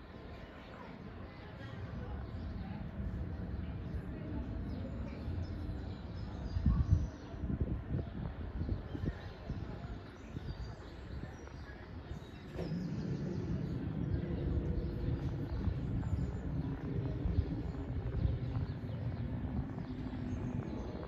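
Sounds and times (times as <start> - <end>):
jet airliner rumbling overhead: 0.2 - 6.8, 11.2 - 21.0.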